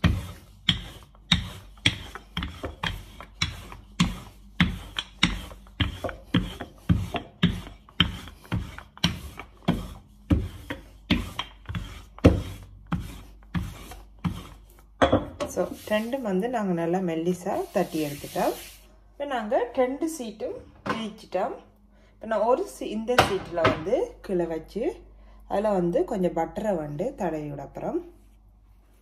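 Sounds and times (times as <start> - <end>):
rolling pin knocking on stone: 0.0 - 15.6.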